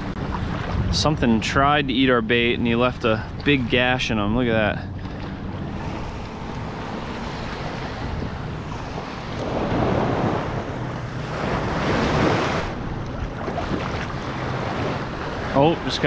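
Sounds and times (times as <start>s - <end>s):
small waves washing on shore: 0.0s - 16.0s
wind buffeting microphone: 0.0s - 16.0s.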